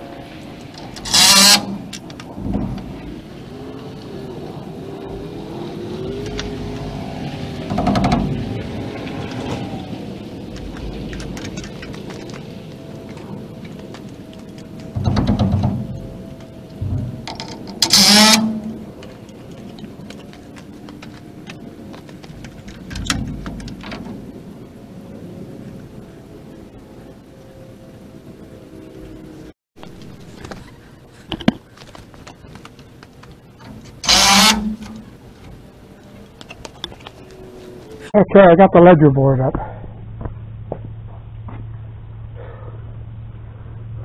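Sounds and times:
low rumble: 0.0 - 31.3, 32.0 - 44.0
engine running: 0.0 - 38.2, 39.6 - 44.0
power drill whirring: 1.0 - 1.8, 17.3 - 18.8, 34.0 - 35.1.

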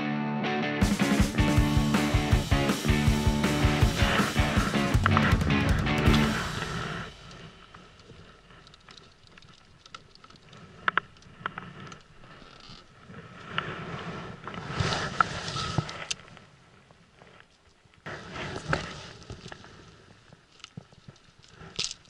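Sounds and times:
faint wind: 6.1 - 22.0
gear clicks and knocks: 7.3 - 13.2.

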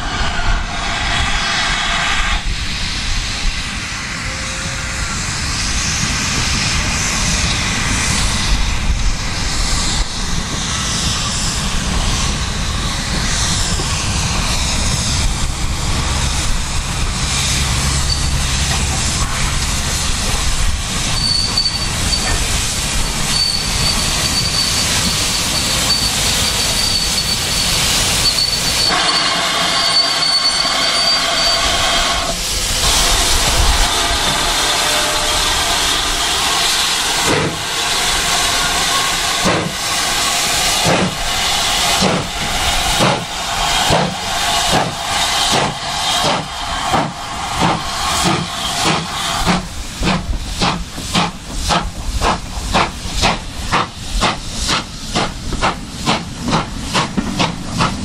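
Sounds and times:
steam train rumbling past: 0.0 - 58.0
high wheel squeal: 17.9 - 18.6, 21.0 - 22.5, 23.2 - 37.2.

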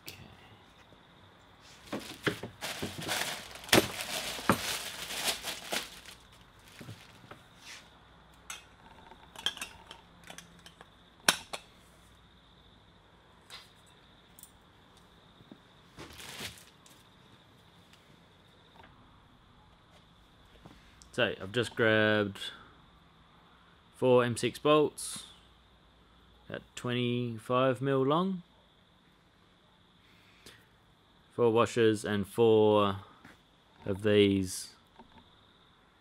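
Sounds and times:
metal lamp parts clinking: 8.4 - 11.6.

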